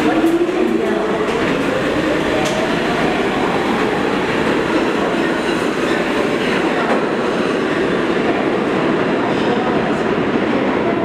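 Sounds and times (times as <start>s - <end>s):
subway train wheels rumbling: 0.0s - 11.0s.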